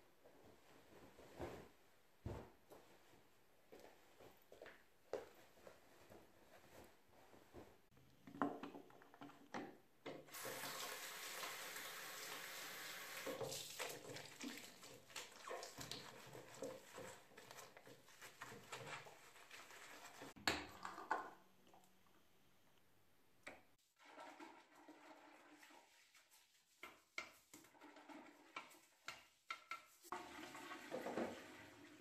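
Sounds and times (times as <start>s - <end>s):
tap water running into basin: 10.1s - 18.0s, 30.1s - 32.0s
cloth wiping sink: 13.6s - 20.4s, 25.0s - 27.6s.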